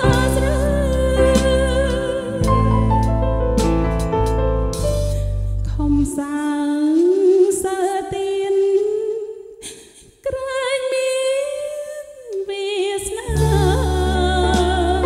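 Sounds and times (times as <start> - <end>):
woman singing with vibrato: 0.0 - 2.7, 5.7 - 15.0
band with bass and drums: 0.0 - 5.5, 13.3 - 15.0.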